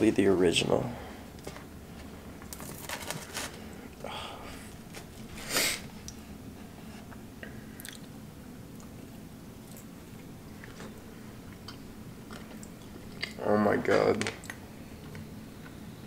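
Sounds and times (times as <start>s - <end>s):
low room hum: 0.0s - 16.0s
person chewing: 7.8s - 13.4s.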